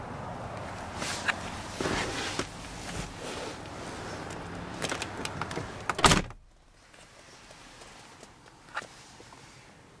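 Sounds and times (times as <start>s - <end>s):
rustling in a seat: 1.0s - 4.3s.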